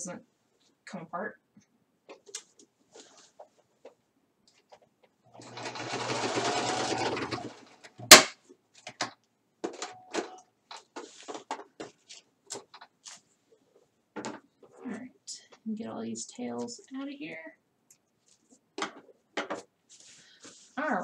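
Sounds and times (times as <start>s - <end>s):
fabric rustling: 2.3s - 7.3s, 10.8s - 14.9s, 19.8s - 21.0s
sewing machine stitching: 5.3s - 7.8s.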